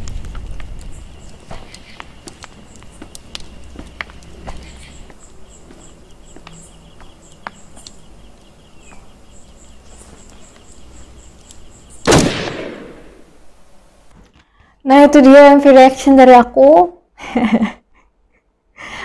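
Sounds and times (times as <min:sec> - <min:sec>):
crickets chirping: 0:00.1 - 0:12.2
gunshot with echo: 0:12.0 - 0:13.3.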